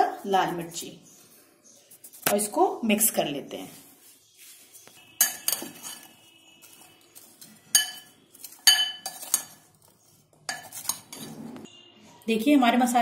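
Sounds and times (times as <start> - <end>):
spoon clinking against glass bowl: 5.2 - 9.7, 10.5 - 11.4.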